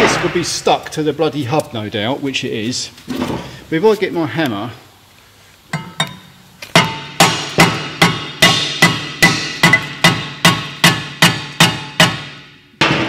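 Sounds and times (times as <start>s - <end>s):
hammer striking metal disc: 5.7s - 13.0s.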